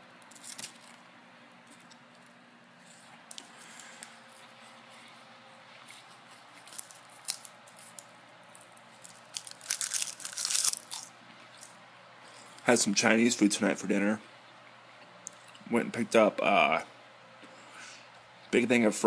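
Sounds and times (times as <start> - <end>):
seaweed snack crackling: 0.2 - 1.0, 5.9 - 11.7.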